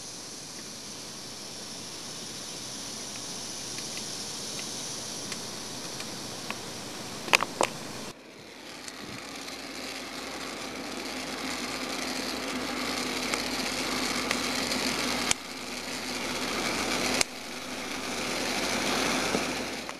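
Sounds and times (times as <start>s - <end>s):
coffee beans crackling: 0.0s - 19.9s
oven fan hum: 0.0s - 19.9s
sharp clicks: 3.1s - 6.6s, 7.2s - 7.8s, 11.5s - 19.9s.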